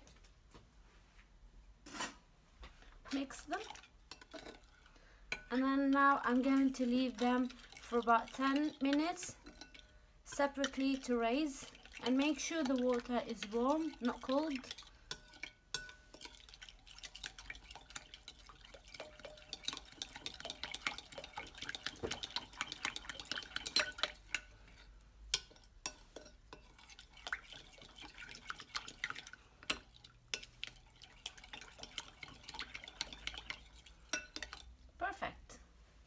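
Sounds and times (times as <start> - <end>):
spoon clinking in glass bowl: 6.2 - 34.7.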